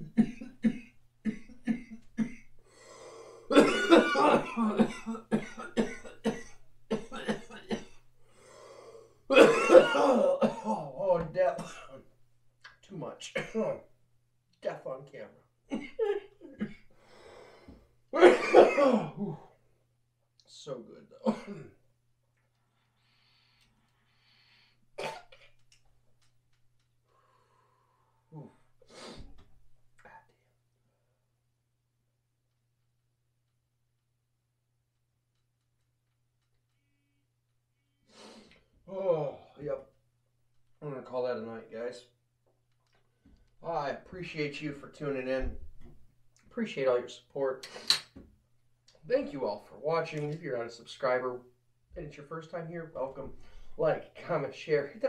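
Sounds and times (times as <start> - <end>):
man coughing hard: 0.0 - 2.6, 3.5 - 8.0, 9.3 - 11.0, 11.6 - 12.0, 13.4 - 13.8, 18.2 - 19.5, 21.2 - 21.8, 25.0 - 25.5
quiet breathing: 2.6 - 3.5, 8.2 - 9.3, 16.9 - 18.0, 22.6 - 25.0, 27.0 - 31.2, 53.3 - 53.8.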